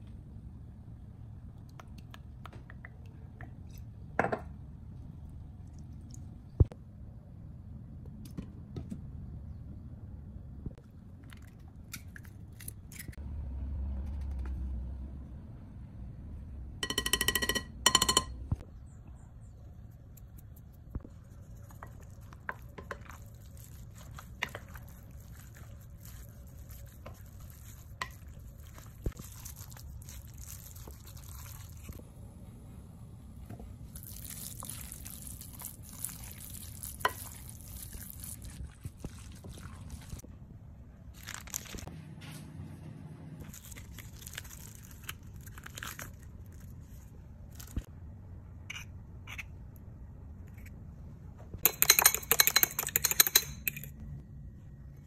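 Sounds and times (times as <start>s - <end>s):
spoon stirring wet filling: 20.1s - 32.0s, 33.9s - 40.2s, 51.6s - 53.9s.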